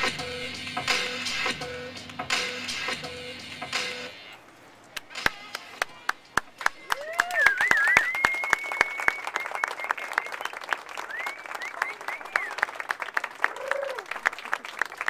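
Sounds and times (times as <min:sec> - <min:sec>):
audience applauding: 0:05.2 - 0:15.0
brief cheer: 0:06.8 - 0:12.7, 0:13.4 - 0:14.2
high whistles: 0:06.8 - 0:12.7.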